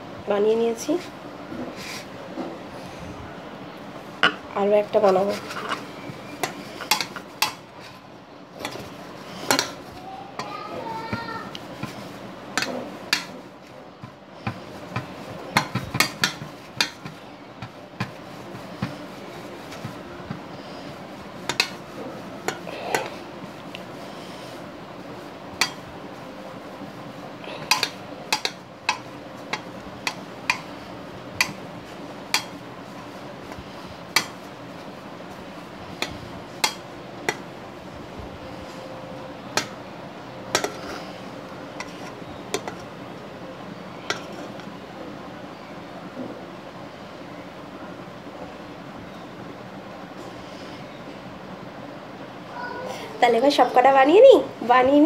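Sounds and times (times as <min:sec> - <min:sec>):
faint steady hum: 0:00.0 - 0:55.0
dough rolled on steel plate: 0:03.9 - 0:45.2.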